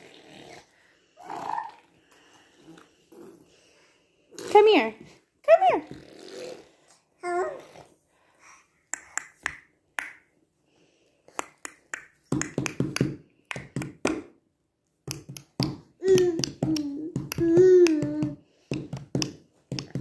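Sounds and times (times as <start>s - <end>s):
baby vocalizing: 0.1s - 1.9s, 6.0s - 7.9s, 16.0s - 18.4s
baby hands slapping wooden floor: 11.3s - 14.4s, 15.0s - 20.0s.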